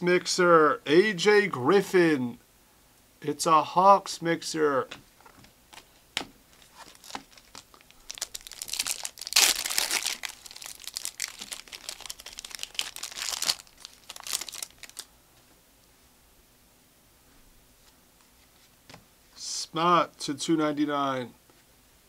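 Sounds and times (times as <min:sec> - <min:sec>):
foil wrapper tearing and crinkling: 0:06.5 - 0:15.1.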